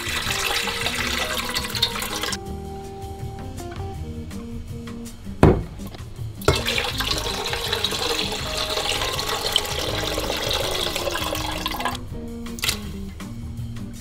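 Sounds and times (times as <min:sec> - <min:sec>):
water pouring into a pot: 0:00.0 - 0:02.4, 0:06.4 - 0:12.0, 0:12.6 - 0:12.8.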